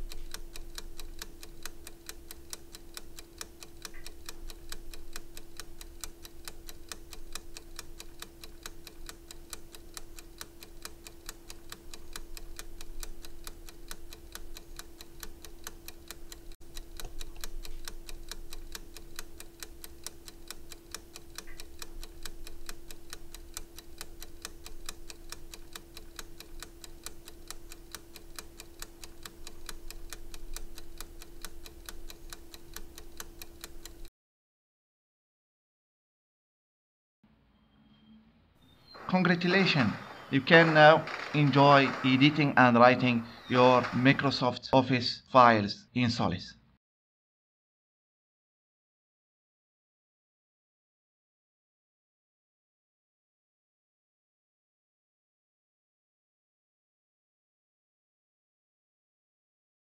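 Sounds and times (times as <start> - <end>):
clock ticking: 0.0 - 34.1, 38.9 - 44.1.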